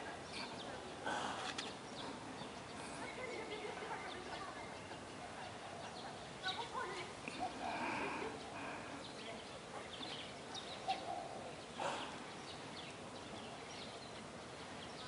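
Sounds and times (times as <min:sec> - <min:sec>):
bird chirps: 0:09.0 - 0:15.0.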